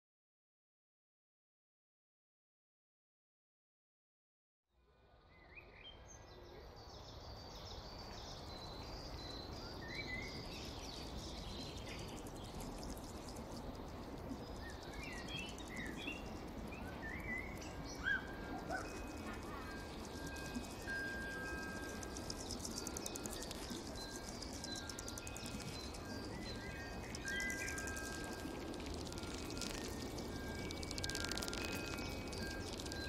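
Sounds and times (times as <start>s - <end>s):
bird-like electronic chirps: 14.4s - 33.0s
electronic rushing noise: 27.0s - 33.0s.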